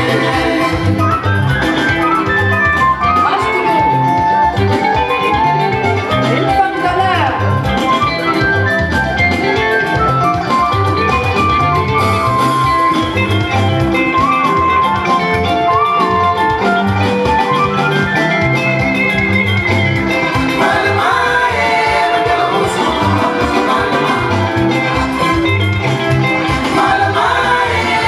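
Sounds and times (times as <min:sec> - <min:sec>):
dance music with beat: 0:20.4 - 0:28.0
woman singing into microphone: 0:20.6 - 0:24.6.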